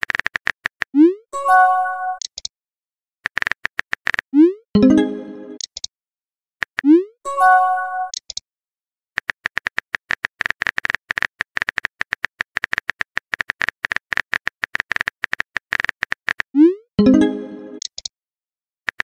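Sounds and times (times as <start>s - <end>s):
chiming message tone: 1.4s - 2.2s, 4.8s - 5.6s, 7.3s - 8.1s, 17.0s - 17.8s
keyboard typing clicks: 2.1s - 2.5s, 4.8s - 5.9s, 8.0s - 8.4s, 9.2s - 18.1s.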